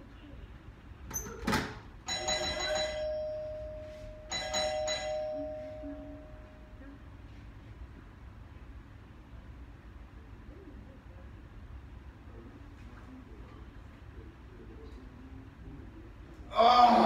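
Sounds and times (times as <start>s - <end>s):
doorbell chime: 2.1s - 6.6s.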